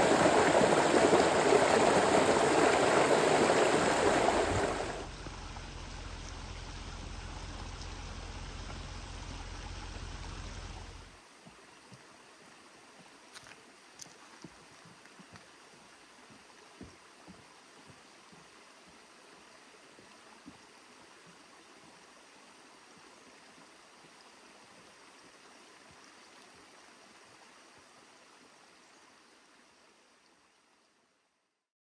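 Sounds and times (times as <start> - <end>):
creek water rushing: 0.0 - 30.8
low rumble: 4.0 - 11.2.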